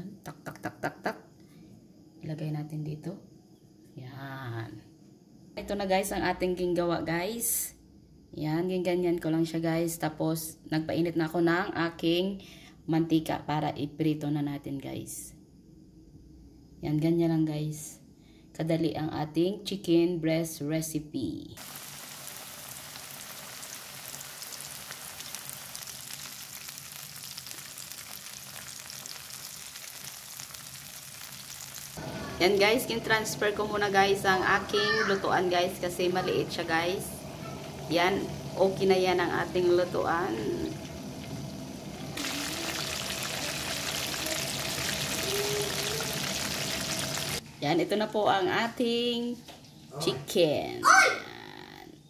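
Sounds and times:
food deep-frying in oil: 0:21.6 - 0:47.4.

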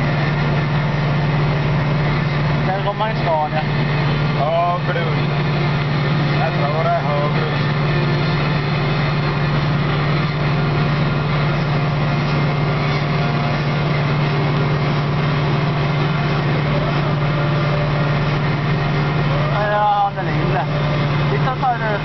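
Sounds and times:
rattle and road noise: 0:00.0 - 0:22.0
tractor engine droning: 0:00.0 - 0:22.0.

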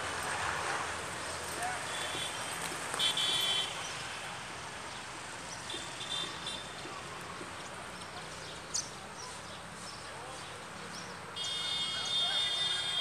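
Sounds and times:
sparrows chirping: 0:07.6 - 0:13.0.

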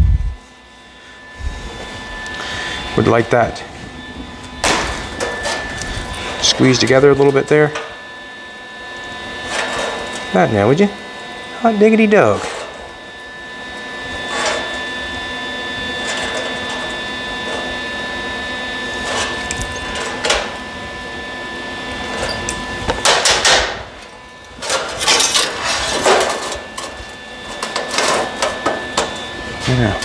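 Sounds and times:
thin high whine: 0:00.0 - 0:30.0
workshop hum: 0:00.0 - 0:30.0
metal clanks and scrapes: 0:04.6 - 0:06.6, 0:09.4 - 0:10.2, 0:12.4 - 0:12.8, 0:14.3 - 0:14.8, 0:16.0 - 0:16.9, 0:19.0 - 0:20.6, 0:22.1 - 0:30.0.

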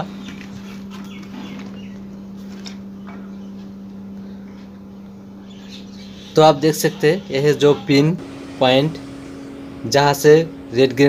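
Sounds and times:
steady low hum: 0:00.0 - 0:11.0
faint bird chirps: 0:05.4 - 0:07.9.

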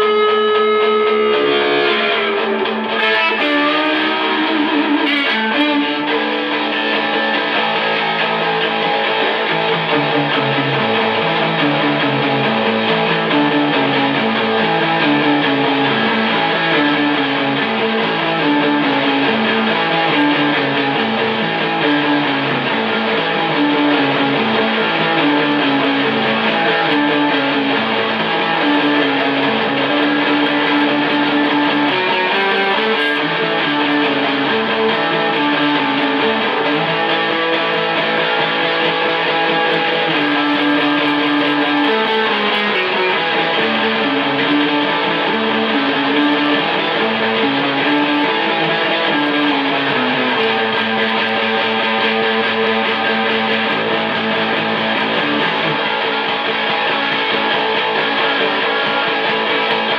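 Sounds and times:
electric guitar chord: 0:00.0 - 0:59.9
low electric guitar riff: 0:00.0 - 0:59.9.

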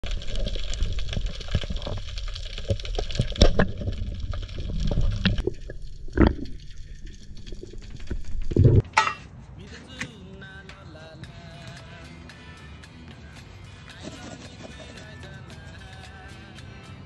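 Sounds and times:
muffled underwater water wash: 0:00.0 - 0:08.8
sharp underwater clicks and knocks: 0:00.0 - 0:08.9.

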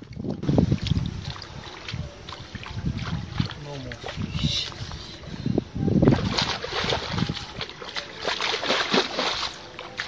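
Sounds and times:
splashing in muddy water: 0:00.0 - 0:04.3, 0:06.0 - 0:10.0.

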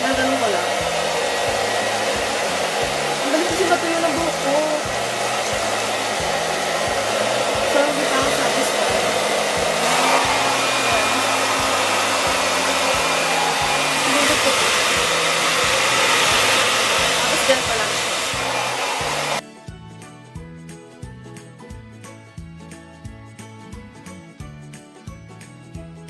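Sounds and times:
hair dryer blowing: 0:00.0 - 0:19.4.

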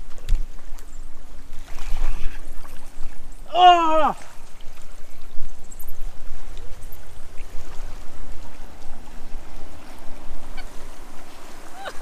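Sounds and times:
wind buffeting microphone: 0:00.0 - 0:12.0
faint bird calls: 0:10.4 - 0:12.0.

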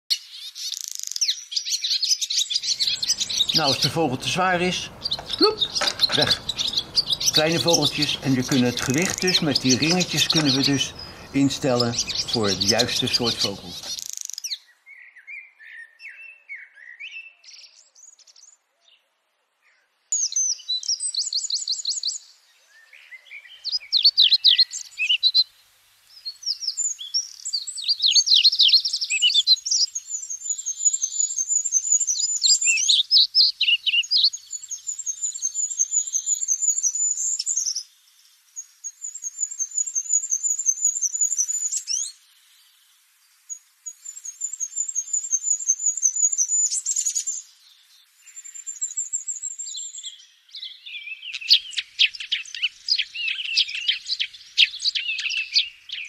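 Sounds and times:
songbirds singing: 0:00.1 - 0:56.0
rapid high bird trill: 0:02.5 - 0:14.2.

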